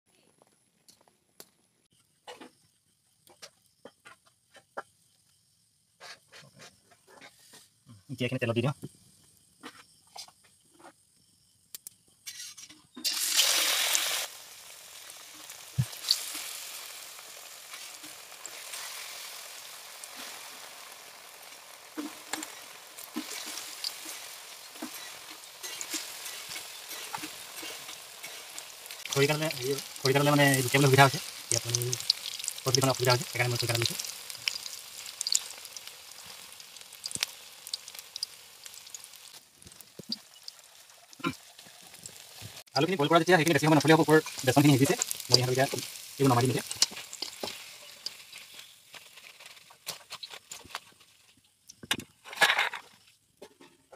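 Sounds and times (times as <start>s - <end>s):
food sizzling in hot oil: 12.2s - 51.8s.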